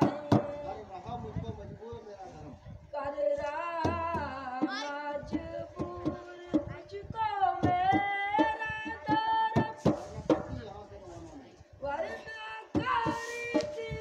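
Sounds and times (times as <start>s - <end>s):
drum beats: 0.0s - 0.8s, 3.8s - 10.8s, 12.6s - 14.0s.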